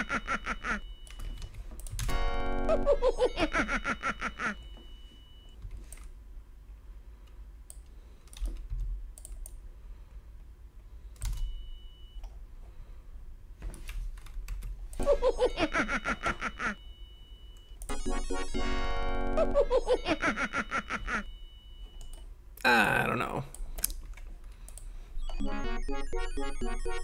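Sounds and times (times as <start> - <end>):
low electrical hum: 0.0 - 27.0
keyboard and mouse clicking: 1.1 - 2.1, 7.7 - 9.6.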